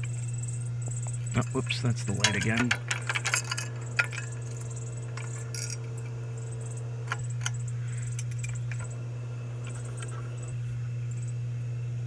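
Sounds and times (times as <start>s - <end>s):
ceiling fan motor humming: 0.0s - 12.0s
light clicks and clinks: 0.9s - 6.2s.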